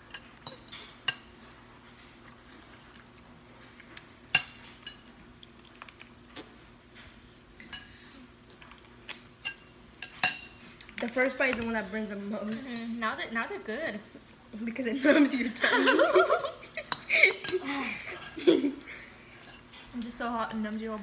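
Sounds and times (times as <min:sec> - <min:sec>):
forks clinking on dishes: 0:09.4 - 0:10.7.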